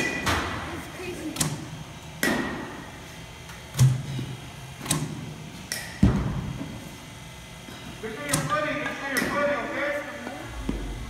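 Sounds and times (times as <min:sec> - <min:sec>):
bat striking balls: 0:01.4 - 0:03.0.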